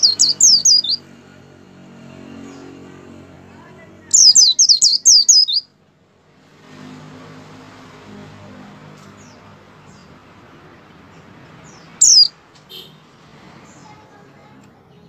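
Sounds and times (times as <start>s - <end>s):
bird chirping song: 0.0s - 1.1s, 4.0s - 5.7s, 11.0s - 12.4s.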